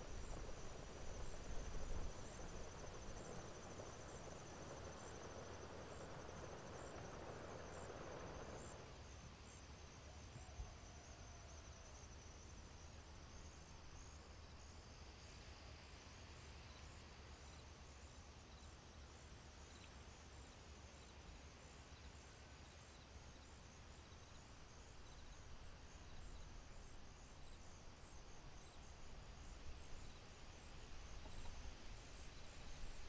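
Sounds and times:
low hiss and rumble: 0.0s - 9.6s, 23.4s - 33.0s.

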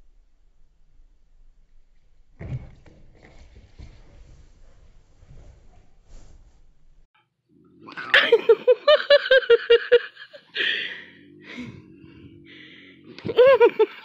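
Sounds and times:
woman laughing: 8.1s - 11.1s, 13.2s - 14.0s.

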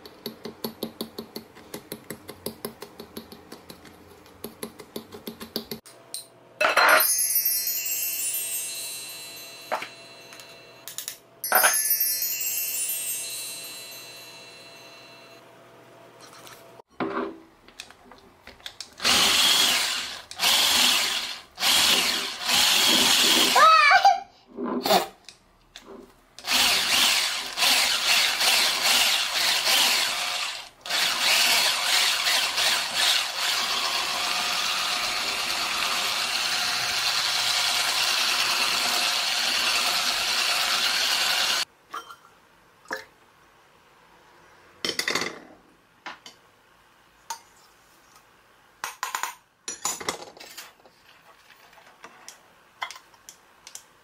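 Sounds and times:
knocks and clinks: 5.8s - 15.2s
electric hand mixer whisking: 19.0s - 23.6s, 26.4s - 41.6s.

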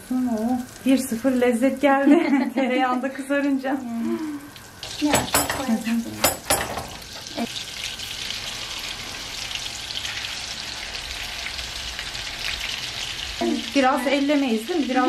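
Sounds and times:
meat sizzling in a frying pan: 0.0s - 15.0s
fork clinking on a pan: 5.1s - 7.0s.

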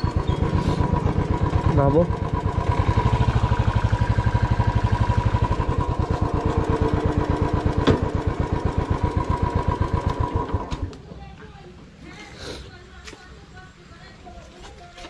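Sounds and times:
motorcycle engine idling: 0.0s - 10.9s.

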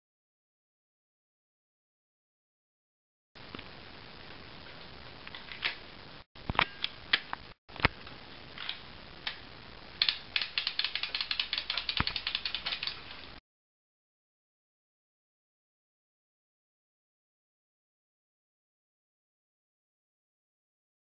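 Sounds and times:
plastic mechanism clicking: 10.0s - 13.2s.

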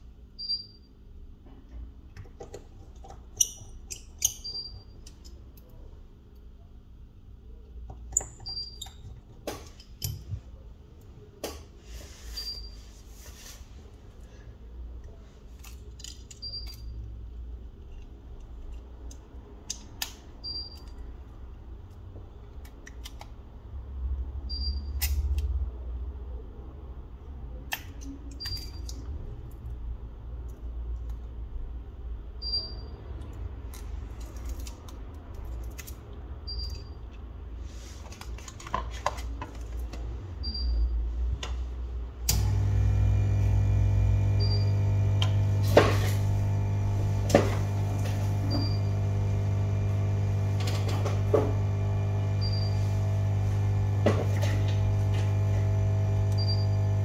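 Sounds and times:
steady low hum: 42.2s - 57.0s.

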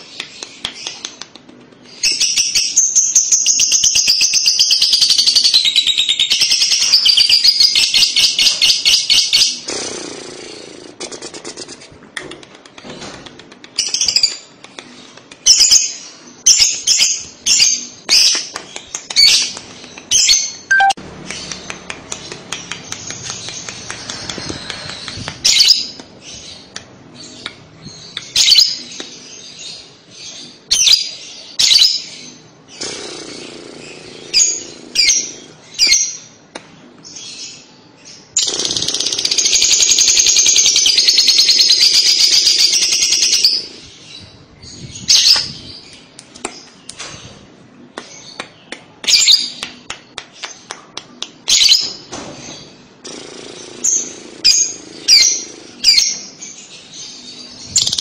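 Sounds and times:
lovebird chirping and chattering: 13.8s - 36.3s, 37.1s - 47.0s, 53.1s - 58.0s.

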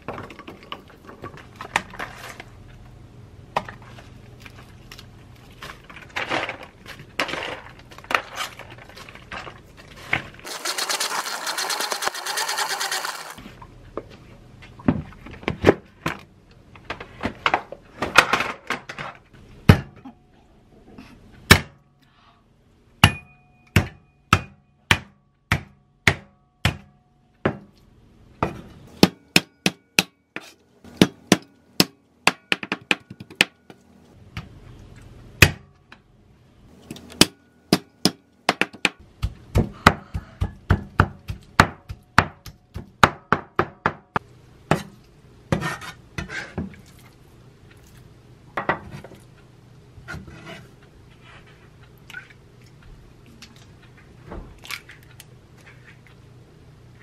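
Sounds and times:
scraping on cutting board: 50.1s - 51.6s.

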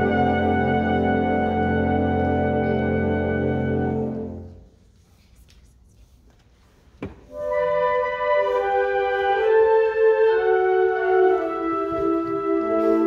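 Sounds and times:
concert band wind chords: 0.0s - 4.7s, 7.3s - 13.0s.

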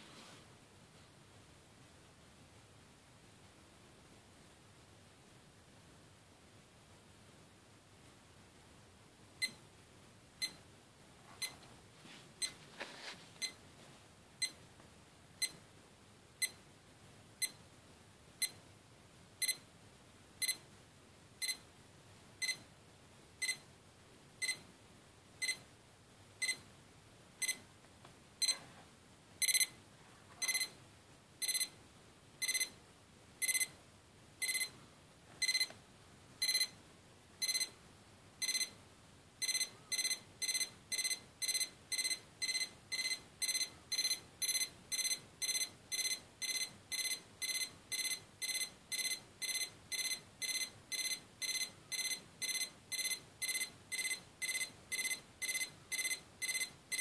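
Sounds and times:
alarm clock beeping: 29.4s - 29.7s, 30.4s - 30.7s, 31.4s - 31.7s, 32.4s - 32.7s, 33.4s - 33.7s, 34.4s - 34.7s, 35.4s - 35.7s, 36.4s - 36.7s, 37.4s - 37.7s, 38.4s - 38.7s, 39.4s - 57.0s.

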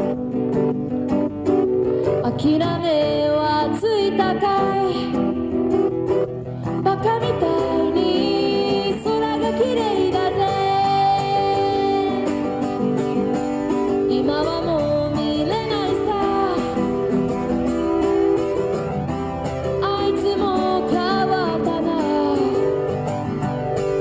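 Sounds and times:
acoustic guitar chords: 0.0s - 24.0s
woman singing: 2.2s - 5.4s, 6.8s - 12.7s, 13.9s - 17.2s, 19.8s - 22.9s.

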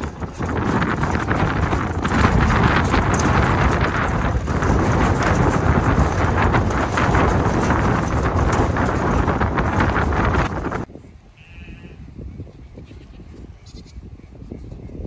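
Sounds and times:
metal panels rattling: 0.0s - 10.9s
wind buffeting microphone: 0.0s - 15.0s.

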